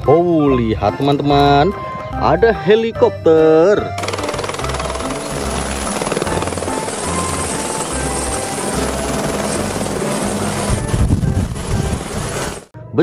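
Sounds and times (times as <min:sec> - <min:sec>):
helicopter rotor blades chopping: 0:03.9 - 0:12.7.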